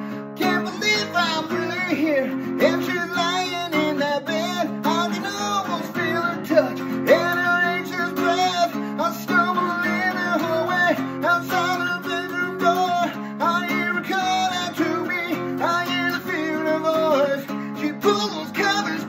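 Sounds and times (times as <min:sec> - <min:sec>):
acoustic guitar strumming chords: 0:00.0 - 0:19.0
man singing: 0:00.0 - 0:19.0.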